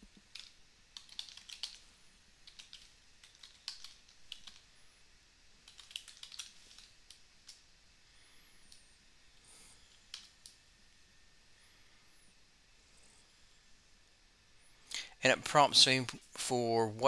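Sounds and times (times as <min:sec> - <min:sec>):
typing on a keyboard: 0:00.3 - 0:01.8, 0:02.4 - 0:04.7, 0:05.6 - 0:07.6.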